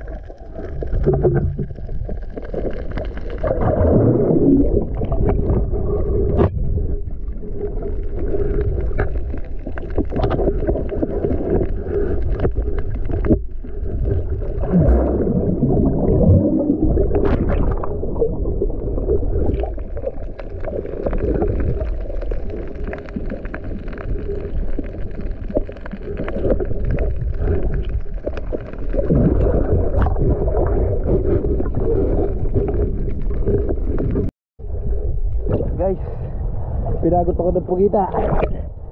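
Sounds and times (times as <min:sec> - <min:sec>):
muffled underwater rushing: 0:00.0 - 0:38.9.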